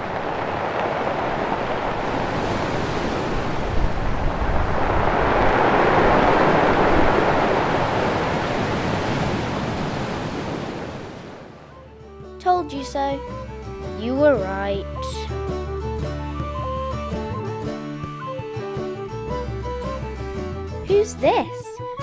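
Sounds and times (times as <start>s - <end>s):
stormy sea waves breaking: 0.0s - 11.9s.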